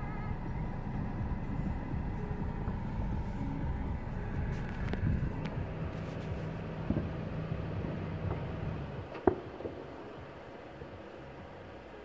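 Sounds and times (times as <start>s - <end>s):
low rumble: 0.0s - 11.7s
distant firework bang: 9.1s - 9.9s
faint firework pops: 9.1s - 9.9s.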